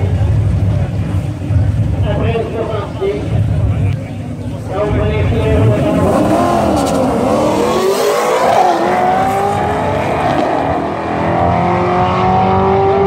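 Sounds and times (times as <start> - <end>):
cars accelerating at full throttle: 4.5 - 13.0.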